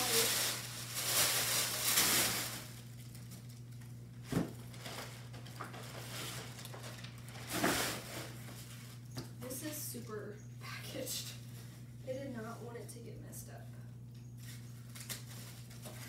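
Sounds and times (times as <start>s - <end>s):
packaging rustling and crinkling: 0.0s - 9.1s, 14.4s - 16.0s.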